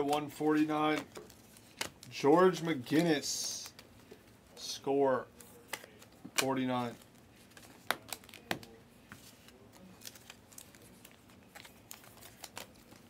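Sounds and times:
trading cards flipping: 0:00.0 - 0:04.2, 0:05.3 - 0:13.0.

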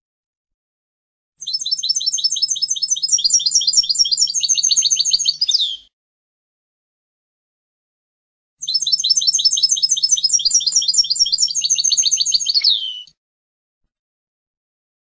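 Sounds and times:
bird singing high notes: 0:08.6 - 0:13.2.

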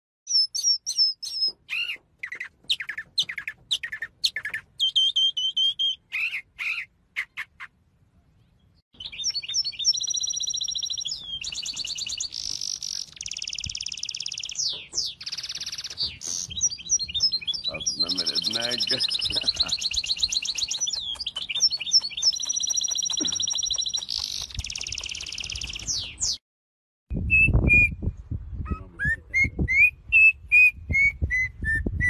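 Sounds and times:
finch trilling: 0:00.3 - 0:07.7, 0:09.0 - 0:26.1
mockingbird singing: 0:00.3 - 0:07.8, 0:08.4 - 0:26.4, 0:28.5 - 0:31.5.

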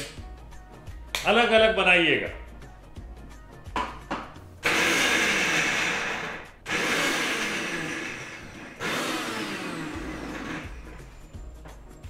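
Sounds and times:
mixer grinder running: 0:04.6 - 0:11.2.

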